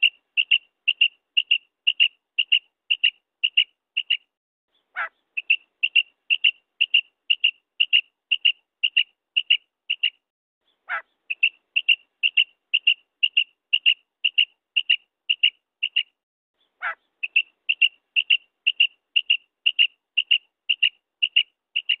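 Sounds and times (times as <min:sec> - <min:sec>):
quail calling short high notes: 0:16.8 - 0:18.9.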